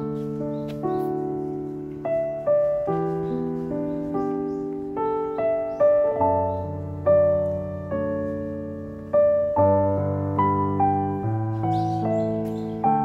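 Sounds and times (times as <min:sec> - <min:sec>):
slow piano melody: 0:00.0 - 0:13.0.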